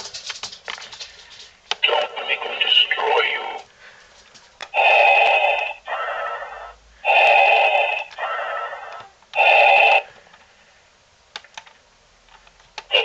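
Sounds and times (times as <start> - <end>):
toy breathing sound effect: 4.8 - 10.5.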